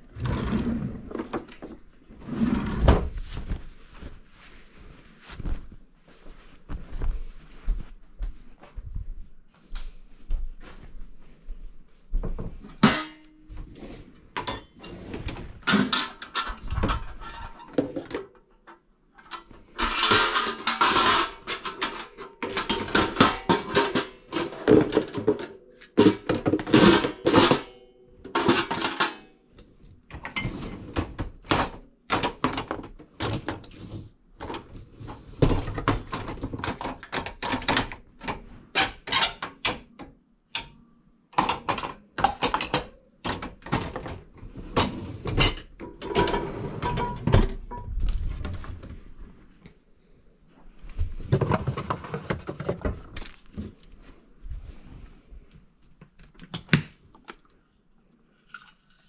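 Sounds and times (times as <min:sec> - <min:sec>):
dishware clattering in racks: 0:12.7 - 0:13.4, 0:14.4 - 0:18.3, 0:19.3 - 0:29.4, 0:35.4 - 0:38.0, 0:41.4 - 0:47.9.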